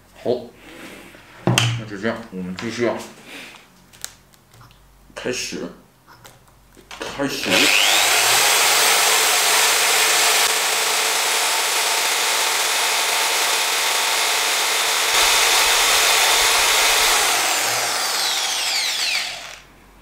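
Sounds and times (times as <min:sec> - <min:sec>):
electric drill grinding wood: 0:07.4 - 0:19.7
wood grinding and rubbing: 0:07.6 - 0:19.6.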